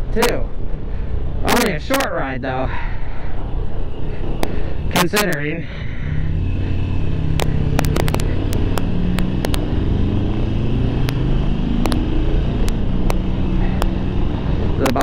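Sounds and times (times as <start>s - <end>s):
motorcycle engine accelerating: 6.0s - 15.0s
sharp ticks: 6.7s - 14.0s.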